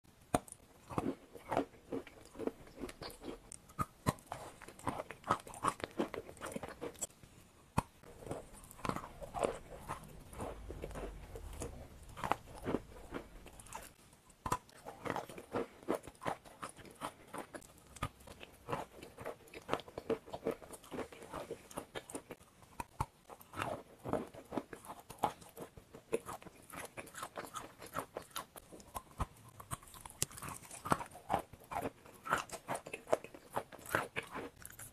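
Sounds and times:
chewing chalk crunches: 0:00.3 - 0:07.1, 0:07.8 - 0:34.9
crumbly grinding: 0:08.0 - 0:34.9.

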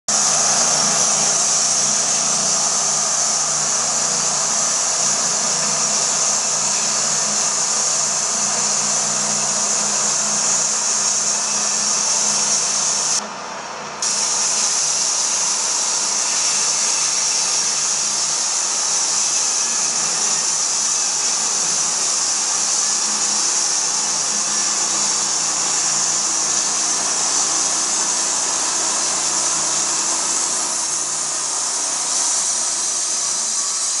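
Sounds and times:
saw blade cutting log hiss: 0:00.1 - 0:13.2, 0:14.0 - 0:34.0.

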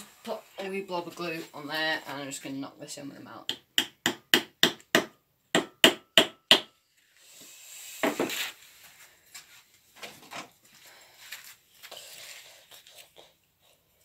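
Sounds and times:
mallet knocking wooden dowel: 0:03.5 - 0:06.7.

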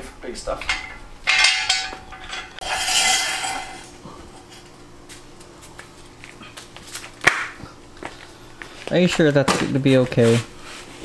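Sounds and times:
metal clattering and scraping: 0:00.0 - 0:04.8
low steady hum: 0:00.0 - 0:11.0.

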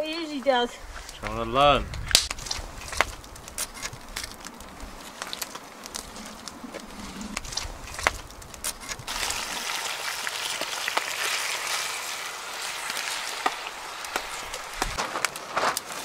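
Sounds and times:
sharp crackles: 0:00.0 - 0:16.0
food sizzling in a pot: 0:09.1 - 0:14.9.

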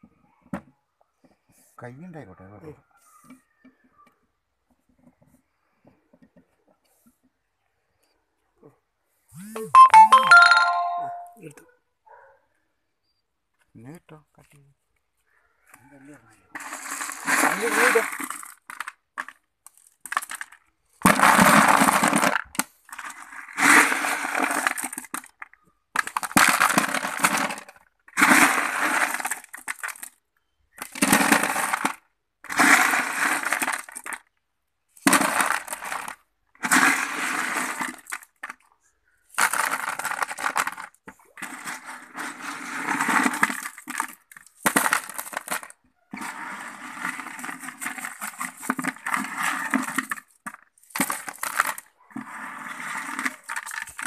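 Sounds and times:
crushed stone clattering into plastic tub: 0:35.0 - 0:38.6, 0:39.3 - 0:51.9.

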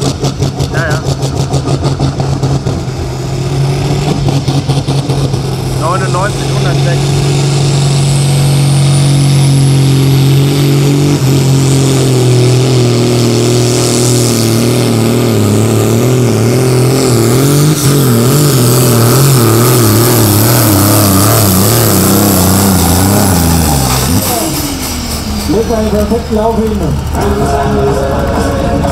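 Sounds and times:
tractor diesel engine labouring: 0:00.0 - 0:28.9.

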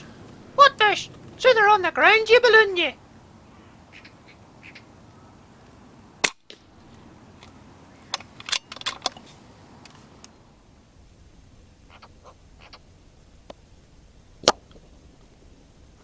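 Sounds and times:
air rifle shot: 0:06.2 - 0:06.7.

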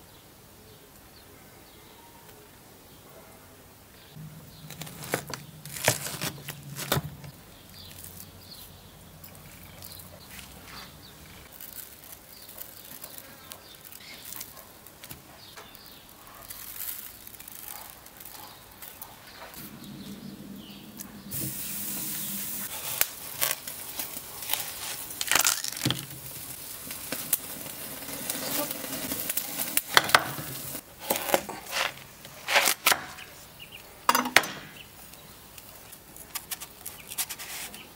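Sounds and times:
coarse salt hissing onto meat: 0:21.3 - 0:25.2.

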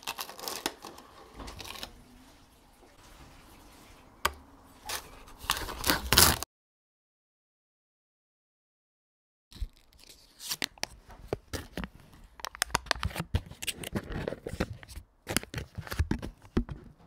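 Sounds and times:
foil wrapper crinkling: 0:00.0 - 0:02.1, 0:04.8 - 0:06.4, 0:09.6 - 0:14.6.

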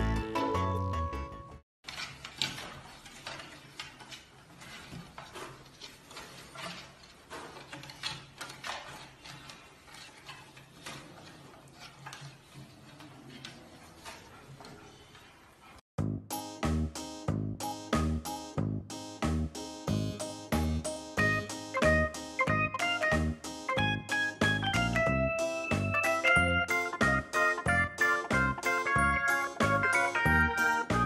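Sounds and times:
clicking on wooden crib rails: 0:01.8 - 0:15.4.

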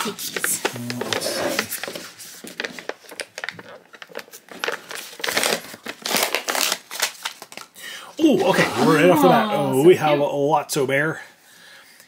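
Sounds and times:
paper crinkling and rustling: 0:00.2 - 0:07.8.

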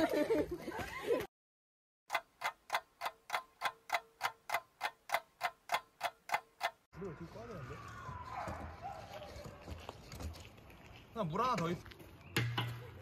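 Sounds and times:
clock ticking: 0:02.1 - 0:06.8
outdoor chatter: 0:06.9 - 0:10.3.

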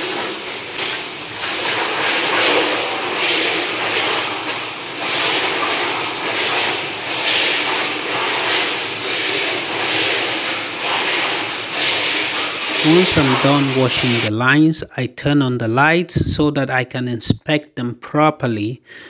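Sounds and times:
pressure washer spraying hiss: 0:00.0 - 0:14.3.

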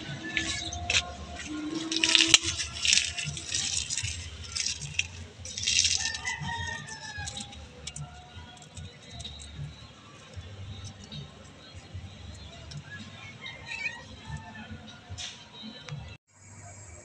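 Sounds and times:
eggshells crackling in a hand: 0:00.2 - 0:11.9
rooster crowing: 0:05.8 - 0:08.5, 0:13.2 - 0:15.1.

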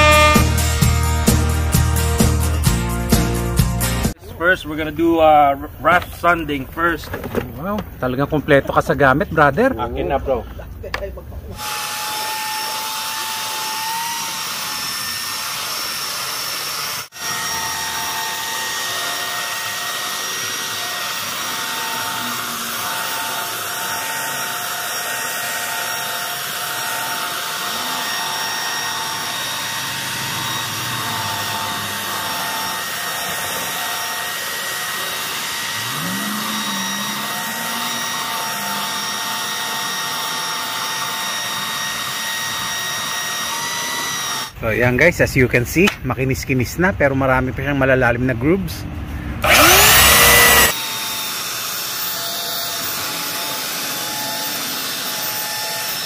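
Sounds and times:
belt sander sanding wood: 0:00.0 - 0:01.6, 0:11.6 - 0:44.6, 0:49.4 - 0:56.0.

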